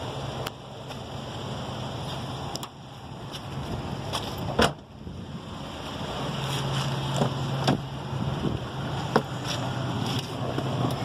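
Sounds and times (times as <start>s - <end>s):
car liftgate thump shut: 4.5s - 4.8s.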